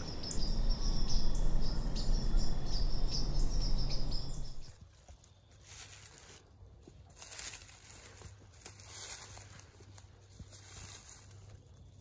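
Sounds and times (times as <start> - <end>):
low rumble: 0.0 - 4.8
crickets chirping: 0.0 - 6.2.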